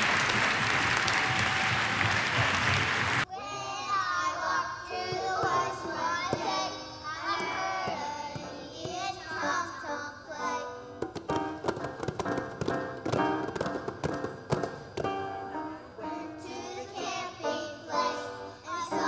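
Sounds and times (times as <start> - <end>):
applause: 0.0 - 3.3
young children singing: 3.3 - 11.0, 15.5 - 19.0.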